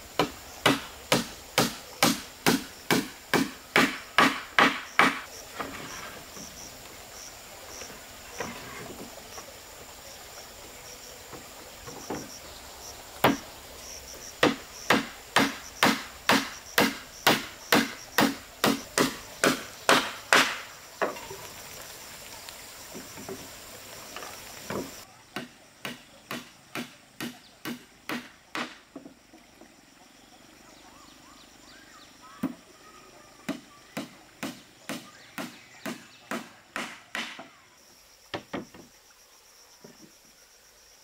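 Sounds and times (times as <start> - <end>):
insect drone: 0.0 - 41.0
hammer on wooden planks: 0.2 - 5.3, 14.4 - 20.7, 24.7 - 29.0, 33.5 - 37.6.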